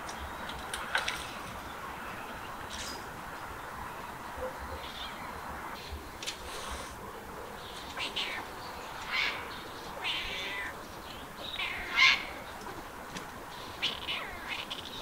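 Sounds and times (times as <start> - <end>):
cat meowing: 4.7 - 5.2, 8.0 - 8.4, 10.0 - 10.8, 11.6 - 12.3, 13.8 - 14.8.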